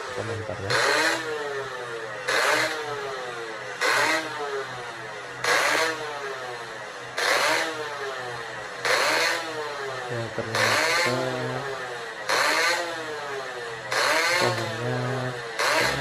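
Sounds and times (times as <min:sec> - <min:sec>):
two-stroke motorcycle engine revving: 0:00.0 - 0:16.0.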